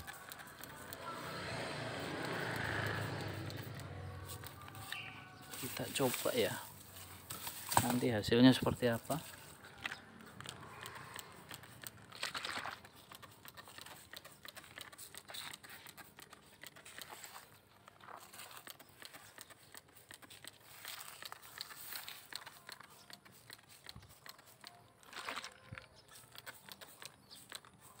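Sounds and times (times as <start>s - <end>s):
spray bottle spritzing: 18.2s - 28.0s.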